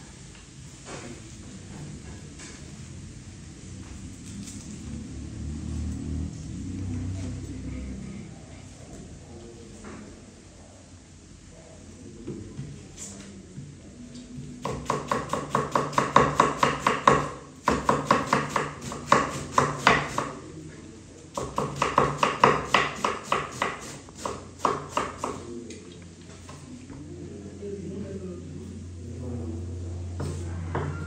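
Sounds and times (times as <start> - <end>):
knife chopping on wooden board: 14.6 - 20.4, 21.4 - 25.4.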